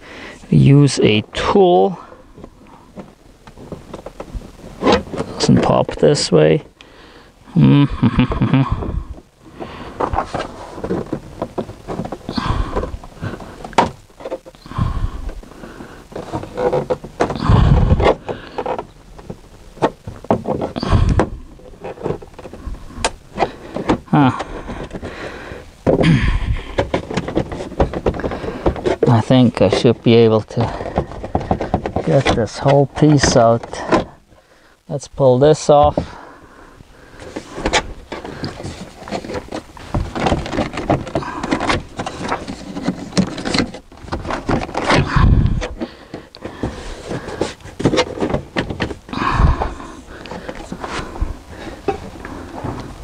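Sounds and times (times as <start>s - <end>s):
plastic trim panel creaking and clicking: 16.1s - 25.2s, 37.2s - 51.0s.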